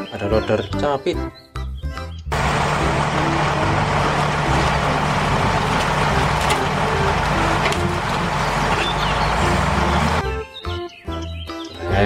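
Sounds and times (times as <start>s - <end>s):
heavy diesel engine under load: 2.3s - 10.2s.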